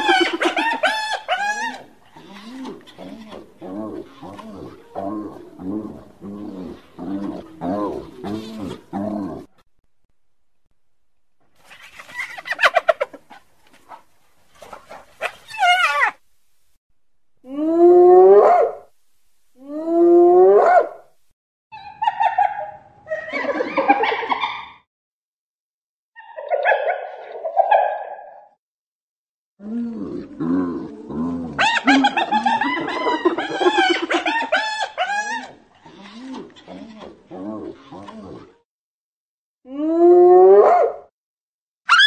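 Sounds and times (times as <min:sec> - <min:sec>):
hyena giggling: 0:00.0 - 0:03.0, 0:31.6 - 0:37.2.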